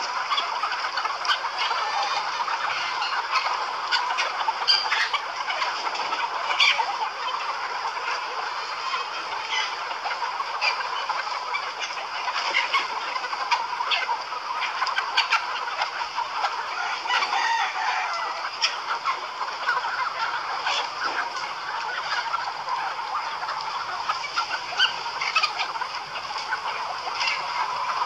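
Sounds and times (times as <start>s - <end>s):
chicken squawks: 0.0s - 28.0s
chickens clucking: 0.0s - 28.0s.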